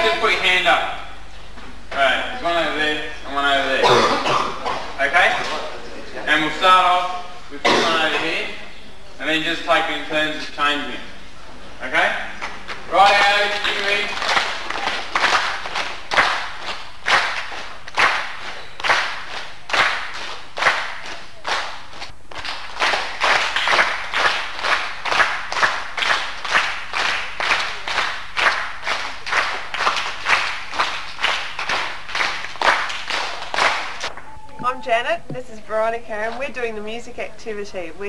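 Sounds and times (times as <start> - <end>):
children clapping in rhythm: 12.4 - 34.1.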